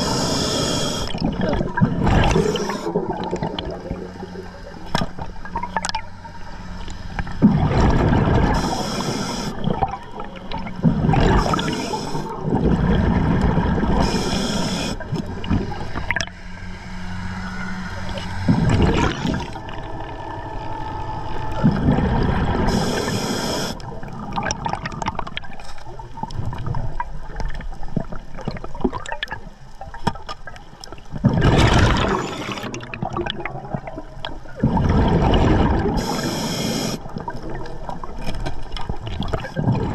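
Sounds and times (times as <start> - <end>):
hissing regulator inhale: 0.0 - 1.2, 2.2 - 3.2, 8.4 - 9.7, 11.3 - 12.4, 13.9 - 15.3, 22.6 - 23.8, 32.0 - 32.7, 36.0 - 37.1
gurgling exhaled bubbles: 0.0 - 6.0, 7.3 - 16.4, 18.1 - 20.6, 21.2 - 39.9.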